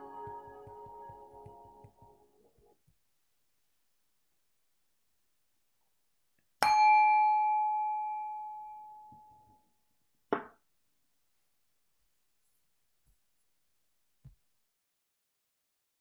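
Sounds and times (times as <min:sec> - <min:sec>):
meditation bell ringing: 0:06.6 - 0:09.5.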